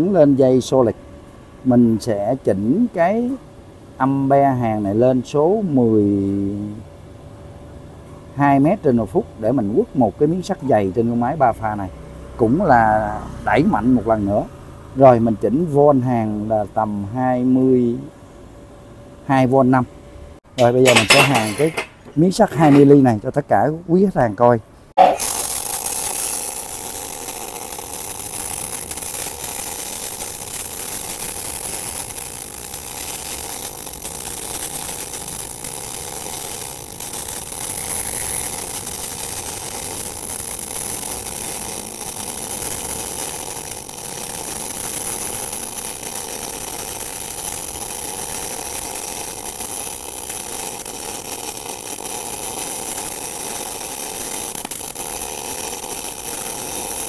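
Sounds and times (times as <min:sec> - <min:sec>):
welding arc buzzing: 0:20.4 - 0:23.2, 0:25.0 - 0:57.0.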